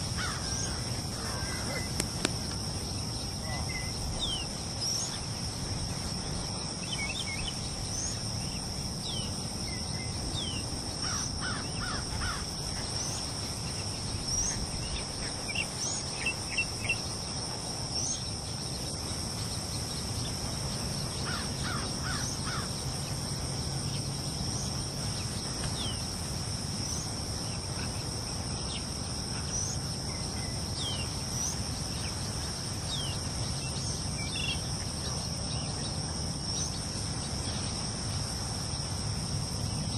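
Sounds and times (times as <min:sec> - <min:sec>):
high-pitched insect chorus: 0:00.0 - 0:39.9
birds chirping: 0:00.1 - 0:05.6.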